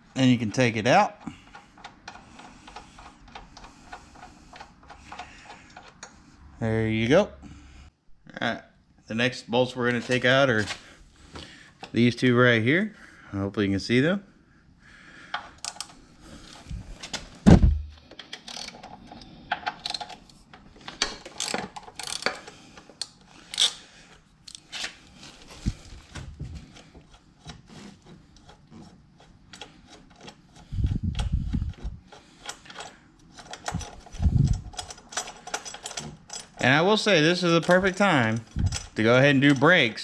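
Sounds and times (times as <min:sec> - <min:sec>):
dull thumps: 0:17.4 - 0:18.0
ratchet wrench clicking: 0:21.4 - 0:22.3.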